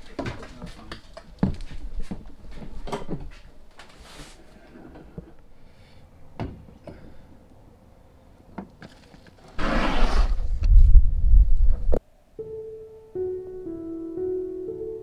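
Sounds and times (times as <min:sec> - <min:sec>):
wind buffeting microphone: 0:10.2 - 0:12.0.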